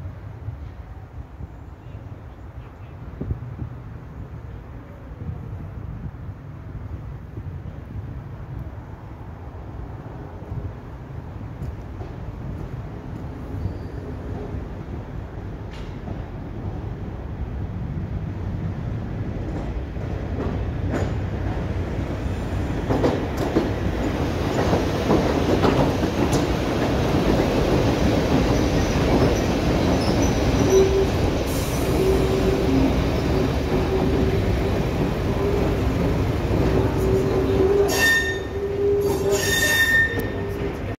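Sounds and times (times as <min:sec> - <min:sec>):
train engines rumbling: 0:00.0 - 0:41.0
wheel squeals: 0:29.3 - 0:34.1, 0:36.8 - 0:40.9.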